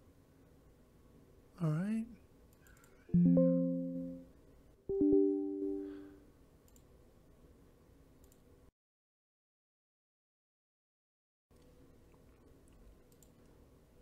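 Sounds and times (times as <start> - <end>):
plucked string chords: 3.1 - 4.3, 4.9 - 6.2.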